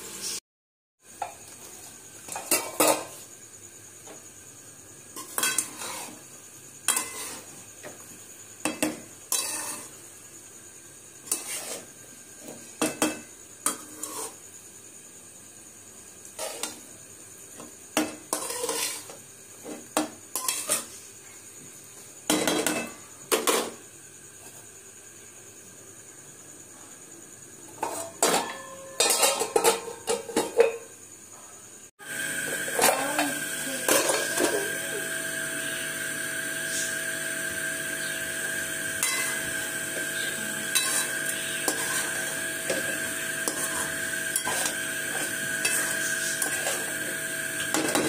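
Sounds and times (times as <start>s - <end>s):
faint sizzle: 1.0s - 48.0s
spatula scraping metal pan: 5.2s - 6.2s, 6.9s - 7.5s, 9.3s - 10.0s, 11.2s - 11.9s, 13.7s - 14.4s, 18.3s - 19.1s, 39.0s - 39.6s, 40.2s - 48.0s.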